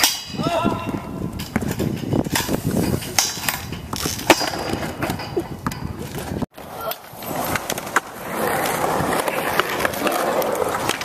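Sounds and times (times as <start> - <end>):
skateboard scraping on metal rail: 1.2 - 11.0
skateboard clacking on pavement: 3.2 - 11.0.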